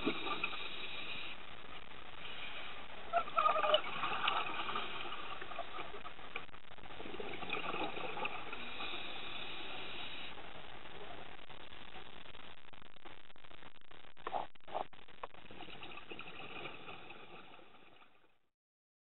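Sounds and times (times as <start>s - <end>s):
gurgling exhaled bubbles: 3.1s - 10.3s, 15.3s - 18.2s.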